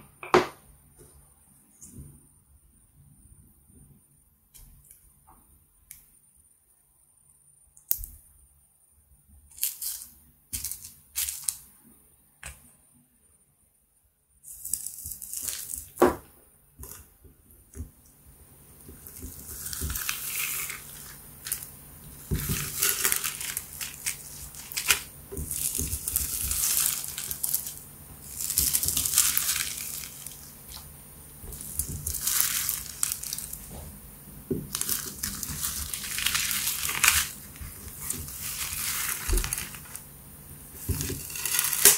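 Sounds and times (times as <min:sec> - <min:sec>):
slime crackling and crinkling: 0:09.5 - 0:11.7, 0:14.4 - 0:16.0, 0:18.8 - 0:34.0, 0:34.6 - 0:41.9.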